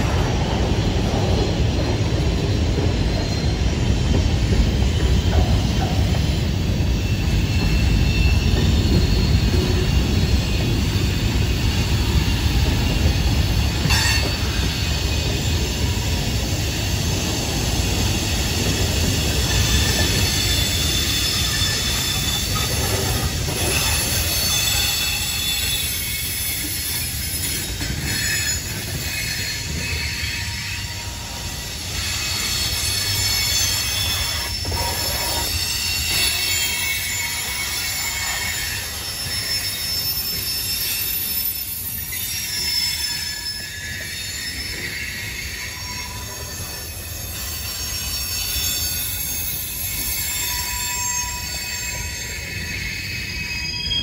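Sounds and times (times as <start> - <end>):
train wheels rumbling: 0.0 - 54.0
high wheel squeal: 1.6 - 54.0.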